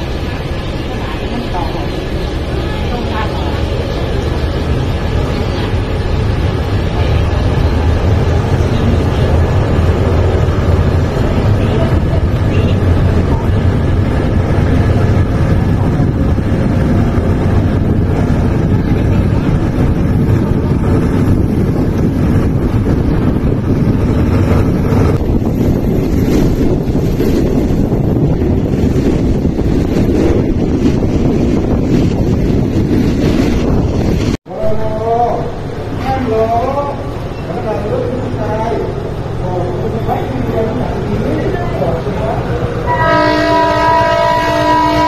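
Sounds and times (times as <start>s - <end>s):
train carriage rumbling on track: 0.0s - 45.0s
wind buffeting microphone: 2.1s - 34.4s.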